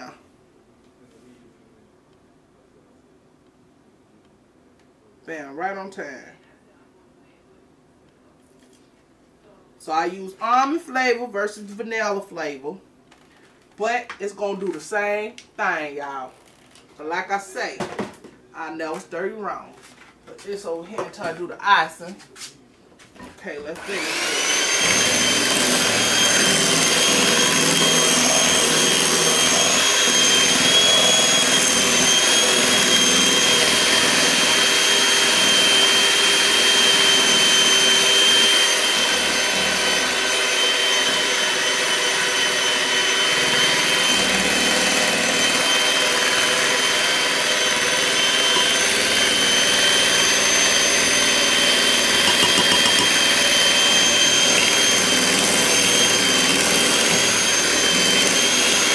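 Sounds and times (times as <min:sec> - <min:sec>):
electric mixer running: 0:23.8 - 0:58.9.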